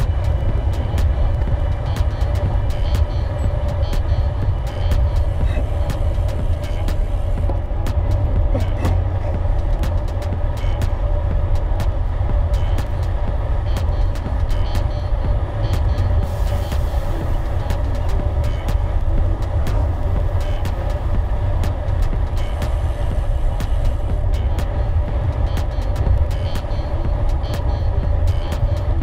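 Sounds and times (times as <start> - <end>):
sharp ticks and clicks: 0.0 - 5.3
wind rumble on microphone: 0.0 - 29.0.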